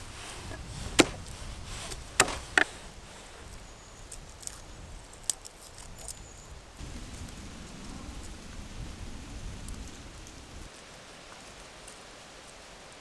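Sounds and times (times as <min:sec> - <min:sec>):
garlic crackling: 0:00.4 - 0:02.7, 0:03.9 - 0:06.4.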